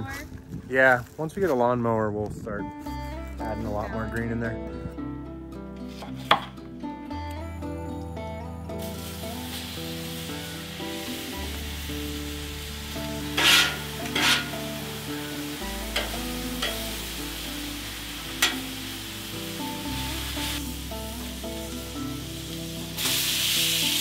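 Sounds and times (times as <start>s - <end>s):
background music with bass line: 2.1s - 24.0s
meat sizzling on a griddle: 8.8s - 24.0s
metal spatula scraping steel plate: 13.3s - 14.7s.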